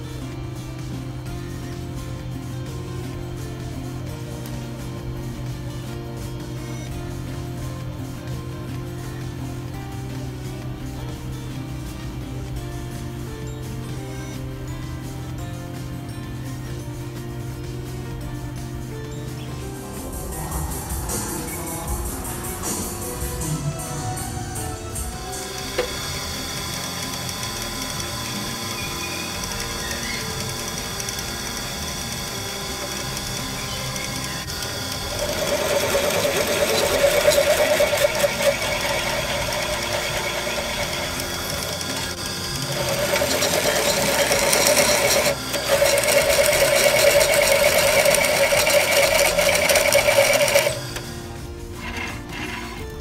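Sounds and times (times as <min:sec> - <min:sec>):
drill press motor hum: 0:19.6 - 0:53.0
drill bit grinding steel: 0:25.0 - 0:51.1, 0:51.8 - 0:53.0.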